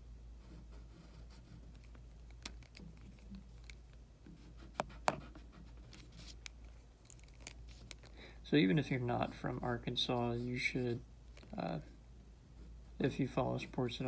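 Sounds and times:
pencil scratching on paper: 0.4s - 1.9s, 4.2s - 6.4s.

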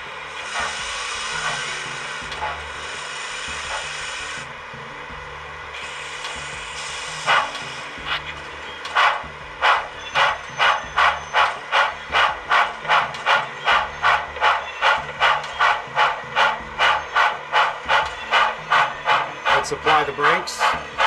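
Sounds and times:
model train steam chuffs: 0.0s - 4.6s, 5.7s - 21.0s.

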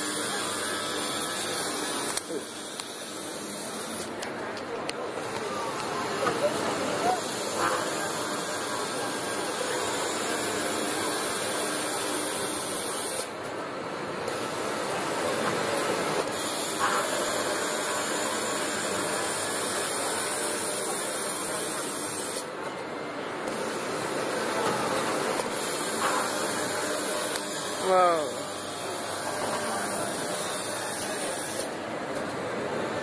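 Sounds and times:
circular saw cutting steel: 0.0s - 4.1s, 16.2s - 22.5s, 23.8s - 31.8s.

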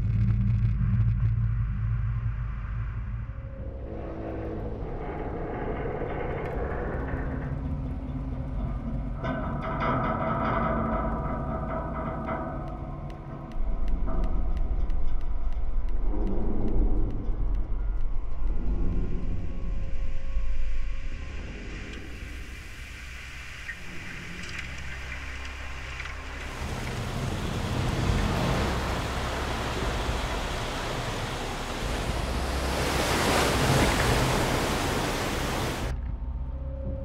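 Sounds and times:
low rumble: 0.0s - 37.0s
water rushing and surging: 20.4s - 35.9s.

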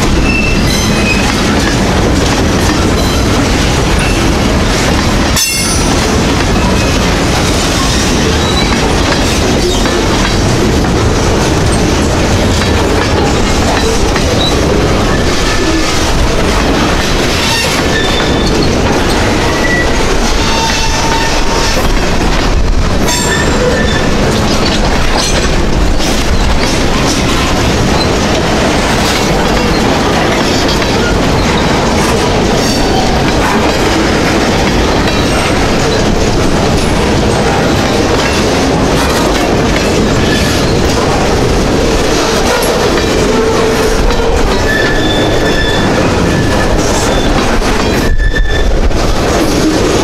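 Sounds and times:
clickety-clack over rail joints: 0.0s - 50.0s
steel wheels rolling on rail: 0.0s - 50.0s
high wheel squeals: 43.4s - 47.3s, 47.9s - 48.8s.

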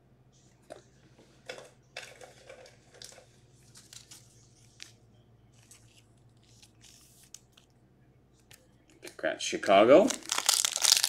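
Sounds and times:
low steady hum: 0.0s - 11.0s
card rustling in plastic sleeve: 2.0s - 7.8s, 9.9s - 11.0s.

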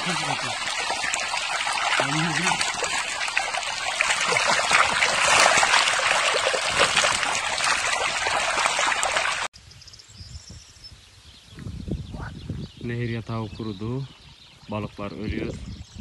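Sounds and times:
water rushing over stones: 0.0s - 9.5s.

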